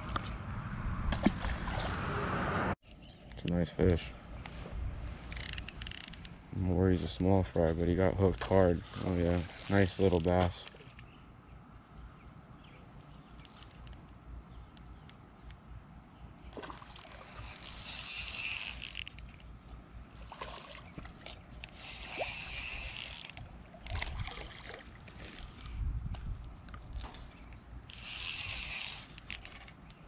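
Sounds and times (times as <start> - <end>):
fishing reel whirring and clicking: 5.3 - 6.3, 9.2 - 10.3, 13.4 - 14.0, 16.8 - 19.5, 21.2 - 24.2, 27.8 - 30.0.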